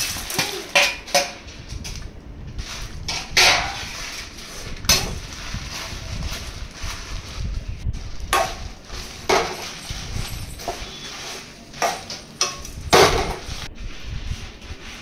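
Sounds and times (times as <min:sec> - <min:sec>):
metal spoon scraping pan: 0:08.4 - 0:13.7.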